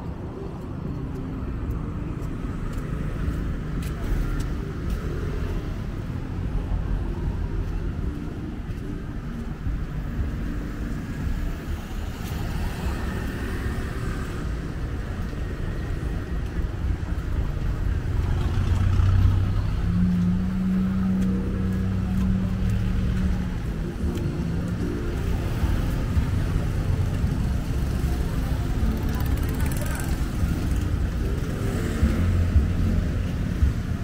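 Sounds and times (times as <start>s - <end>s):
passing cars rumble: 0.0s - 34.0s.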